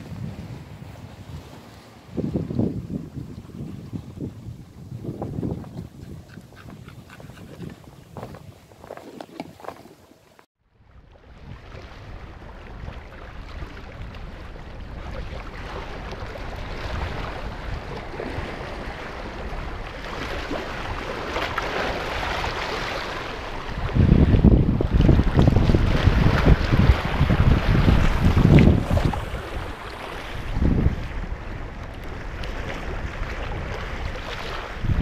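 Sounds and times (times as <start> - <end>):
wind buffeting microphone: 0.0 - 9.8, 10.8 - 35.0
sea water splashing against rocks: 11.3 - 35.0.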